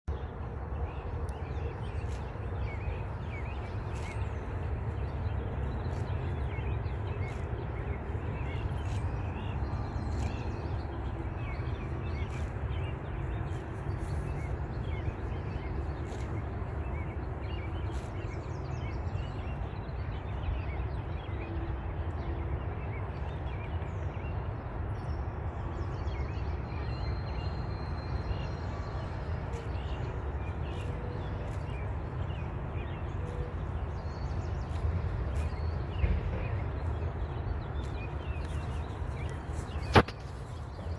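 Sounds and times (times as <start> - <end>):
steady low rumble: 0.1 - 40.9
horse tearing grass: 1.6 - 19.5, 29.2 - 40.9.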